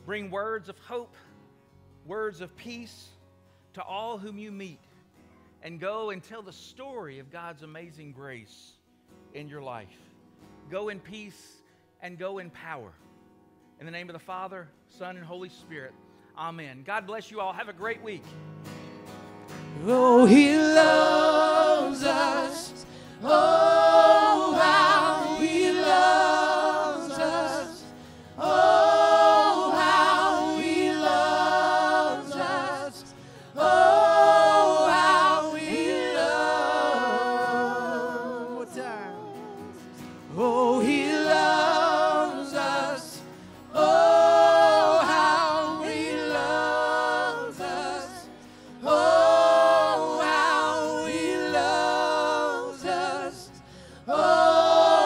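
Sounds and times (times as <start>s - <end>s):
voices singing worship song: 19.7s - 55.0s.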